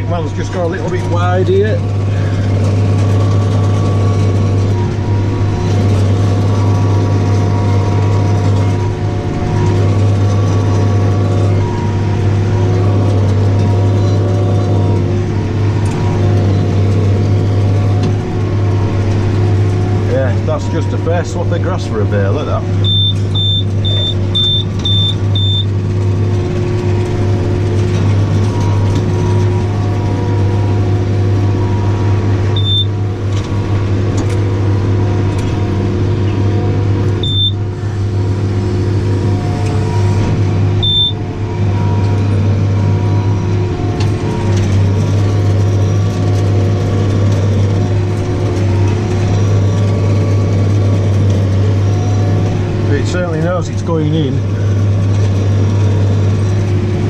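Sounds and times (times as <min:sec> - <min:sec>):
tractor engine running under load: 0:00.0 - 0:57.0
high electronic beep: 0:22.8 - 0:25.7, 0:32.6 - 0:32.9, 0:37.2 - 0:37.6, 0:40.8 - 0:41.2.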